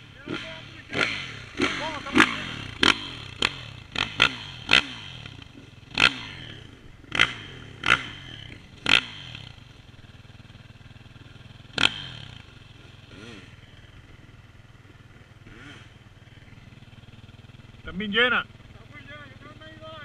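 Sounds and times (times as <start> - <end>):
quad engine running low revs: 0.0 - 20.0.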